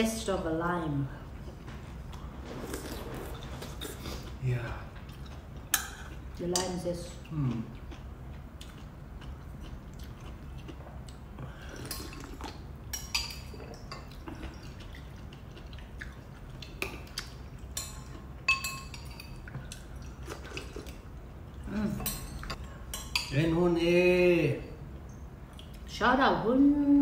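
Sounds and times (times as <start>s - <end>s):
low steady hum: 0.0s - 27.0s
metal spoons clinking on bowls: 12.9s - 14.6s, 17.7s - 19.4s, 21.9s - 23.5s.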